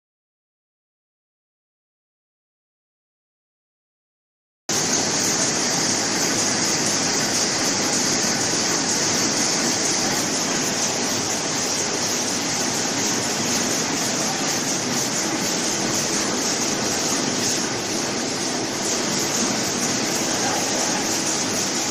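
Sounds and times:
packaging machinery running: 4.7s - 21.9s.

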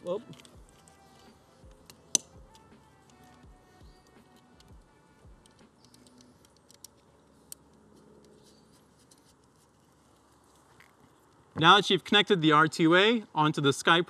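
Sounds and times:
handling rustles: 0.2s - 4.7s, 5.4s - 11.6s.

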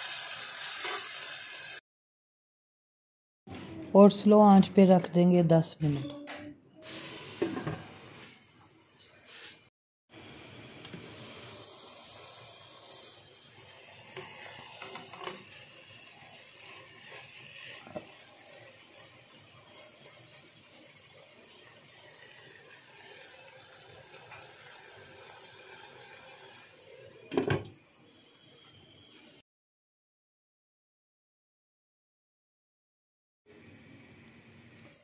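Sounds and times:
spatula scraping a wok: 0.6s - 1.5s, 16.4s - 20.6s.

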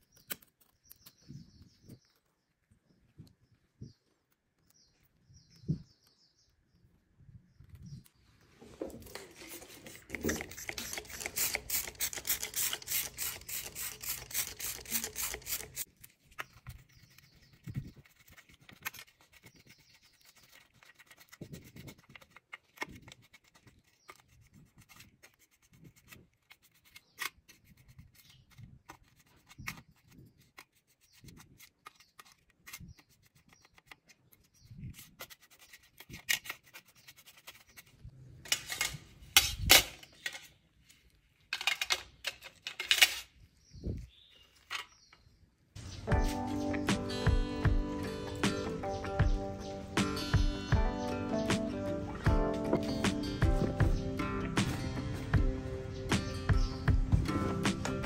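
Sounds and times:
small brush scrubbing: 8.6s - 38.1s.

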